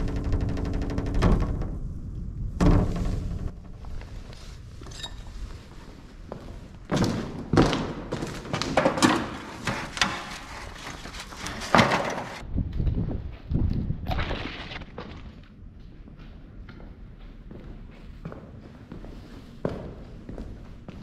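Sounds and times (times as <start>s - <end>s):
irregular knocks and thuds: 0.0s - 4.6s.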